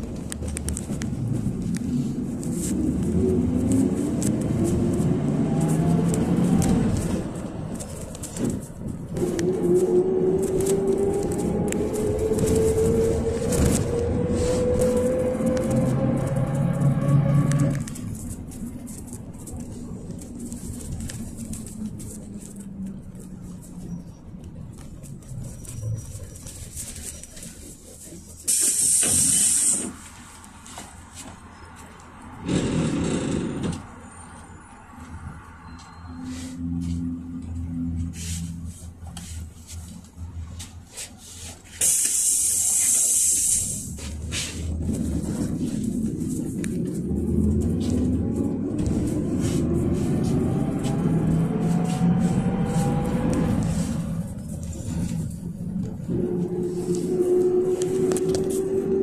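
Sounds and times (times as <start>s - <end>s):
bus engine and road noise: 0.0s - 59.0s
compressed air hiss: 28.5s - 30.0s, 41.8s - 44.0s
rising whine: 45.0s - 59.0s.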